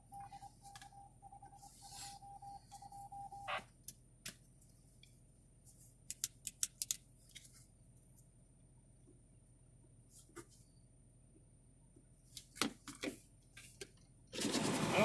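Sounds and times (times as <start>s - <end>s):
faint radio tone: 0.0s - 3.7s.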